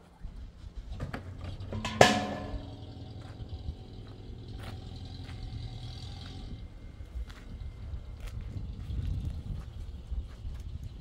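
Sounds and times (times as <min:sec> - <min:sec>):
low steady hum: 0:00.0 - 0:11.0
loud sharp ringing strike: 0:01.8 - 0:03.0.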